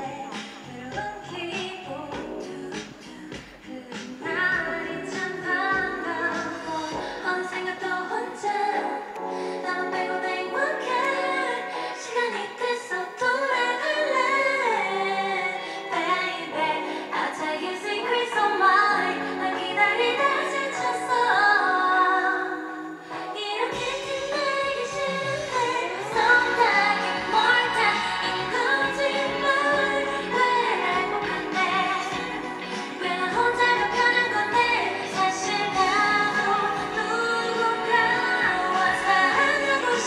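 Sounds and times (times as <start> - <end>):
backing track: 0.0 - 22.0, 23.0 - 40.0
woman singing pop song: 0.0 - 40.0.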